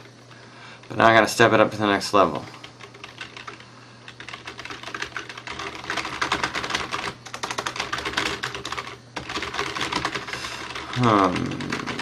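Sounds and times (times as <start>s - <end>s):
steady low hum: 0.0s - 12.0s
fast typing on keyboard: 2.6s - 12.0s.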